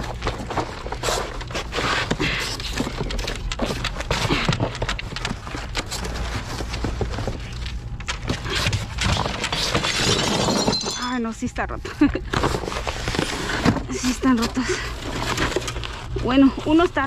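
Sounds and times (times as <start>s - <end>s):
steady low hum: 0.0s - 17.0s
cardboard box scraping and rustling: 12.3s - 17.0s.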